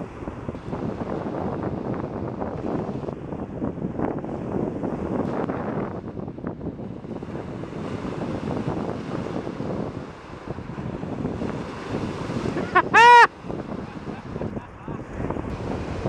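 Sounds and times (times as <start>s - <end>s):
waves breaking on shore: 0.0s - 16.0s
wind on microphone: 0.0s - 16.0s
short loud cry: 12.6s - 13.3s.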